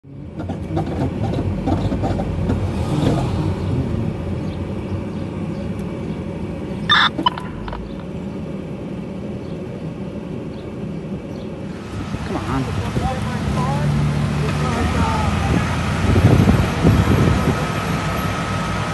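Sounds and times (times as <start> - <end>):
diesel engines idling: 0.0 - 18.9
high-pitched blast: 6.9 - 8.0.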